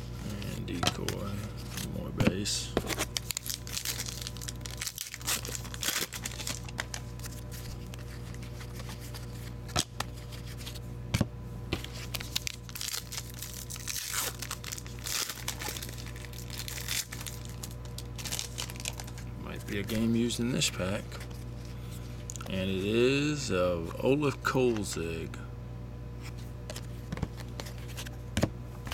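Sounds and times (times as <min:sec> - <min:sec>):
steady low hum: 0:00.0 - 0:28.9
foil wrapper crinkling and tearing: 0:02.8 - 0:10.8, 0:11.8 - 0:21.4.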